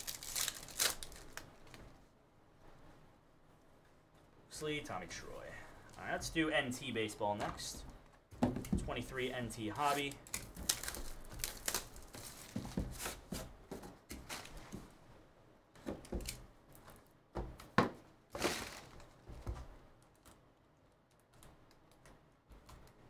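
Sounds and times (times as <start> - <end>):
scraping and rustling: 9.9 - 14.9, 18.3 - 19.5.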